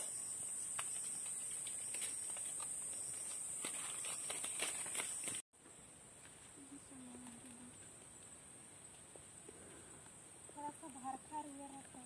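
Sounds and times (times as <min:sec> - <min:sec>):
insects chirring: 0:00.0 - 0:05.4.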